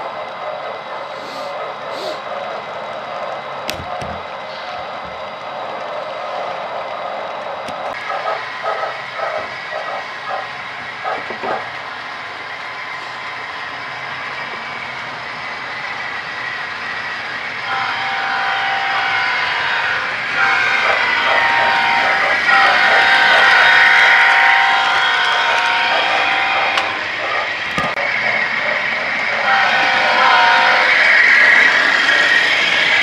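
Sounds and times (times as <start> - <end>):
model locomotive horn: 17.6 - 27.0, 29.4 - 31.0.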